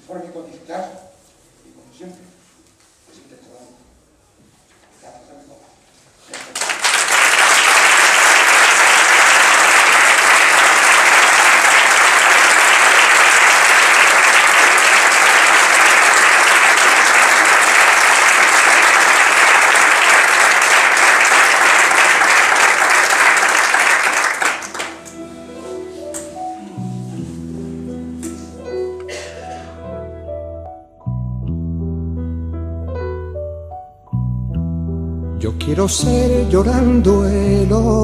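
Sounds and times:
audience applauding: 6.4s - 25.2s.

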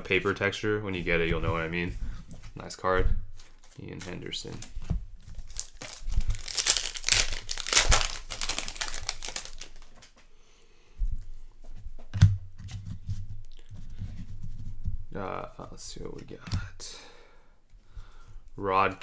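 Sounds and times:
foil wrappers tearing and crinkling: 5.3s - 10.1s.

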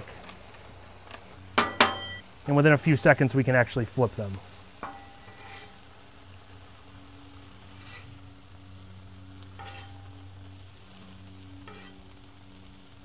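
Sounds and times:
ham sizzling on griddle: 0.0s - 13.0s
metal spatula scraping griddle: 4.8s - 6.0s, 7.6s - 8.2s, 9.5s - 10.2s, 10.8s - 12.2s.

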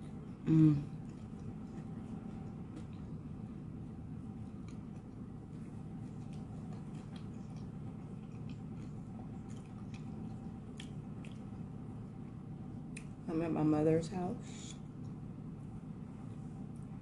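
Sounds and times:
person chewing crunchy food: 0.0s - 3.5s, 4.2s - 13.2s
steady low hum: 0.0s - 17.0s.

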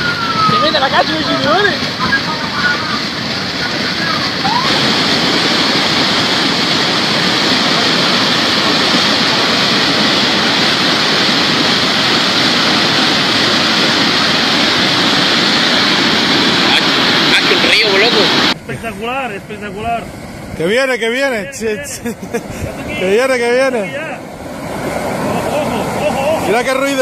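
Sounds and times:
water rushing: 0.0s - 27.0s.

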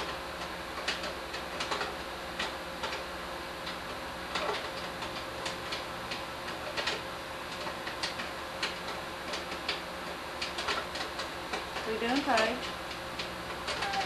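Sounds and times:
sharp clicks and ticks: 10.4s - 14.0s.

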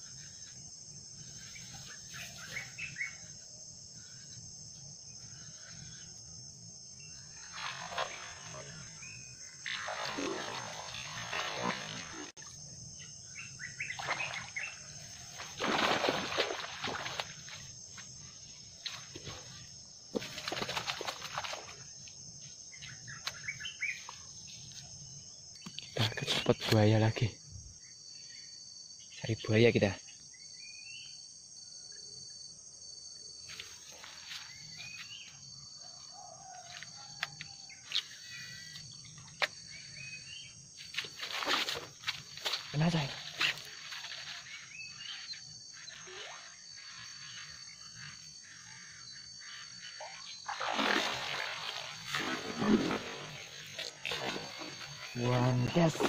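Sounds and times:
high insect drone: 0.0s - 56.0s
bird chirps: 1.4s - 3.4s, 13.0s - 14.8s, 22.7s - 24.1s.

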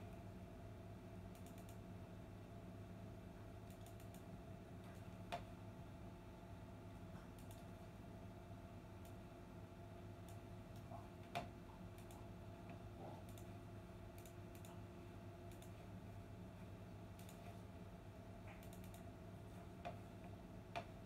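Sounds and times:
faint hum: 0.0s - 21.0s
faint clicks and ticks: 1.3s - 1.8s, 3.4s - 5.6s, 6.9s - 7.8s, 9.0s - 9.3s, 10.1s - 16.0s, 17.1s - 17.6s, 18.4s - 21.0s.

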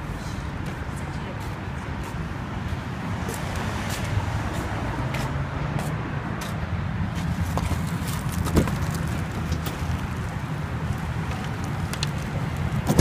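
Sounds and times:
footsteps on concrete: 0.6s - 9.8s.

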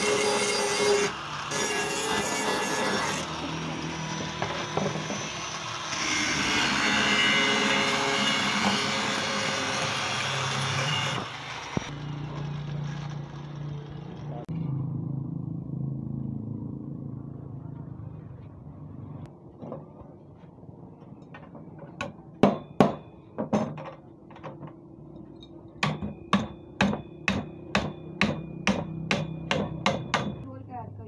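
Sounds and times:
hammer strikes with metallic ring: 22.0s - 23.8s, 25.8s - 30.5s.

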